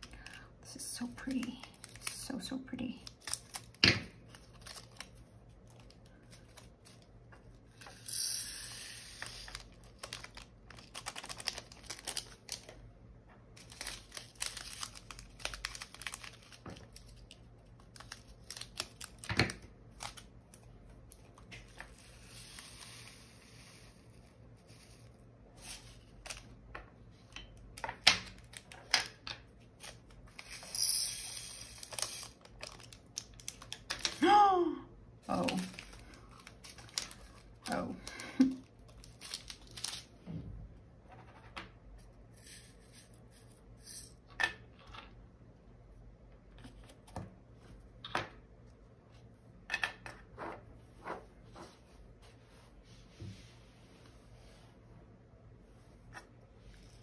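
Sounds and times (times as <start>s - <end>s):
plastic bags rustling and crinkling: 9.2s - 12.8s, 13.6s - 19.3s, 31.8s - 34.2s, 35.3s - 40.2s.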